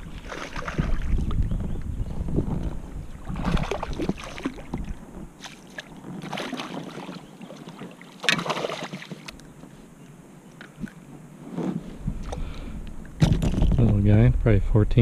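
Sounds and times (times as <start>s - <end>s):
wind rumble on microphone: 0.0s - 6.2s, 10.8s - 15.0s
fish splashing in water: 0.2s - 1.1s, 3.2s - 9.3s.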